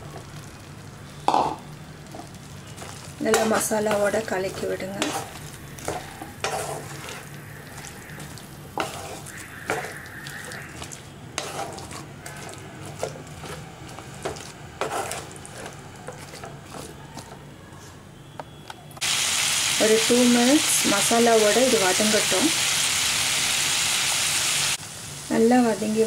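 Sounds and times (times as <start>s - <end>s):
low sizzle: 0.0s - 17.8s, 19.0s - 26.0s
spatula scraping a pan: 2.8s - 17.4s.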